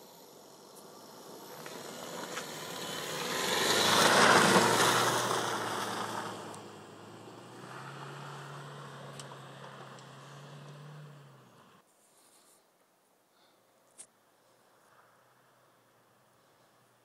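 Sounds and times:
car driving past on slush: 0:01.2 - 0:11.8.

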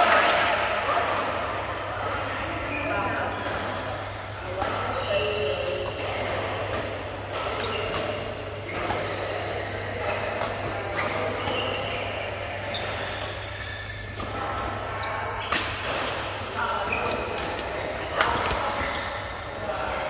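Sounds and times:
rackets hitting shuttlecocks: 0:03.1 - 0:14.8
shoes squeaking on court: 0:04.5 - 0:06.0, 0:07.4 - 0:10.2, 0:10.8 - 0:15.8, 0:16.9 - 0:19.3.

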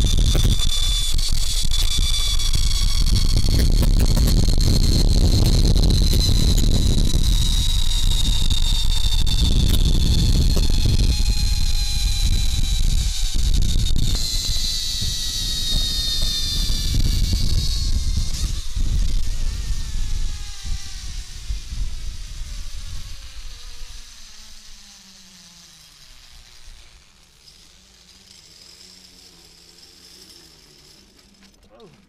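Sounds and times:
wind buffeting microphone: 0:00.0 - 0:24.0
zipline pulleys whining on cable: 0:00.0 - 0:32.0.

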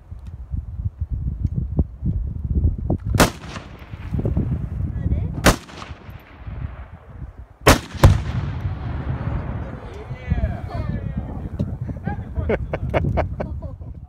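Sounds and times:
rifle shots cracking: 0:03.2 - 0:04.7, 0:05.4 - 0:09.7
exploding target boom: 0:03.2 - 0:10.1.

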